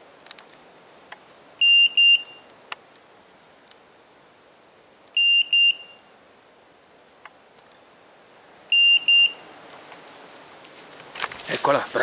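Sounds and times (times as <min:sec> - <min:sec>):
short high beeps: 0:01.6 - 0:02.4, 0:05.2 - 0:06.0, 0:08.7 - 0:09.4.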